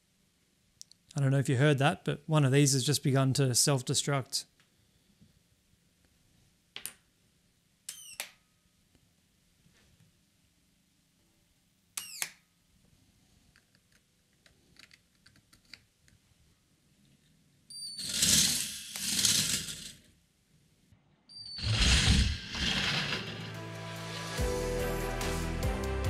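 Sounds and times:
plastic train rattling on track: 18.1s - 20.0s, 21.7s - 23.6s
high electric whine: 21.5s - 25.0s.

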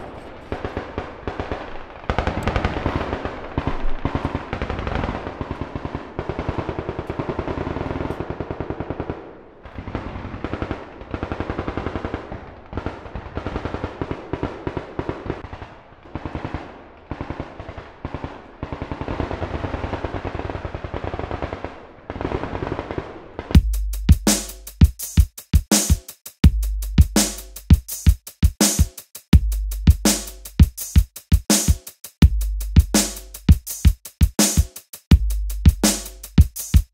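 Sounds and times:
automatic gunfire bursts: 0.0s - 15.6s.

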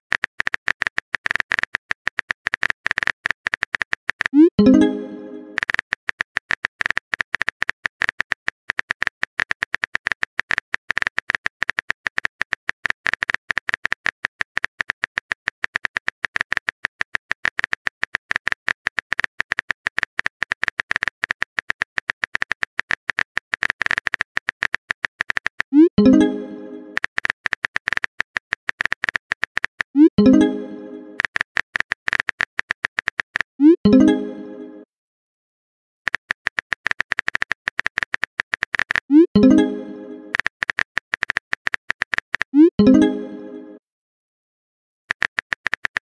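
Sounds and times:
keyboard typing clicks: 0.1s - 34.8s, 36.1s - 43.8s, 45.1s - 46.0s
rising pop and chime: 4.6s - 5.6s, 26.0s - 27.0s, 30.2s - 31.2s, 33.9s - 34.8s, 39.4s - 40.3s, 42.8s - 43.8s.

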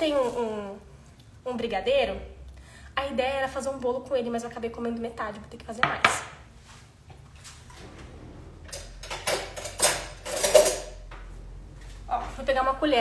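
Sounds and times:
dishes knocking and scraping: 8.7s - 11.0s.

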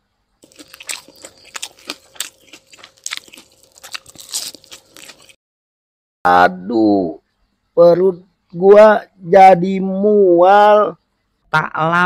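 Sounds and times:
faint steady hum: 0.0s - 5.4s, 6.3s - 12.0s
mouth chewing and crunching: 0.4s - 5.4s.

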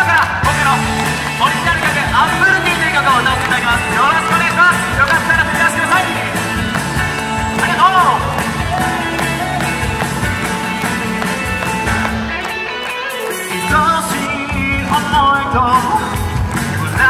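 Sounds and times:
instrumental accompaniment: 0.4s - 16.6s
man singing through microphone: 13.0s - 17.0s.

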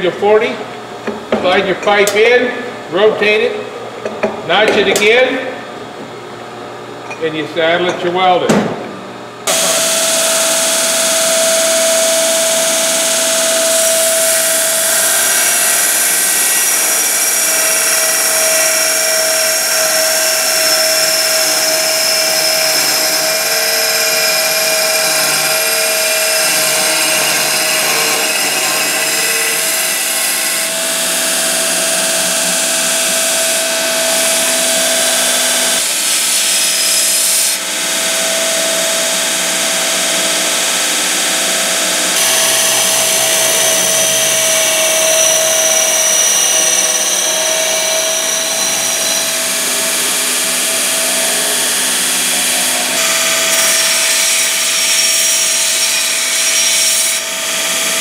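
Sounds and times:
motor whine: 9.4s - 35.8s, 38.0s - 54.2s
metal grinding on abrasive belt: 9.5s - 30.8s, 42.2s - 56.2s.

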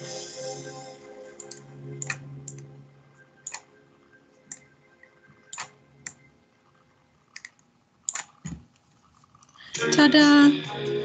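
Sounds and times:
faint music: 0.0s - 11.0s
computer mouse clicking: 1.4s - 2.7s, 3.4s - 3.7s, 4.5s - 4.7s, 5.5s - 6.2s, 7.3s - 9.6s.

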